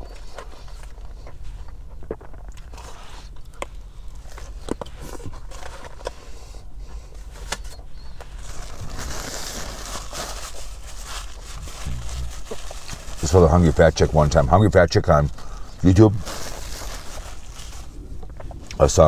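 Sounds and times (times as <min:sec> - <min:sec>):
paper wrapper crinkling: 0:07.3 - 0:14.5, 0:15.1 - 0:19.0.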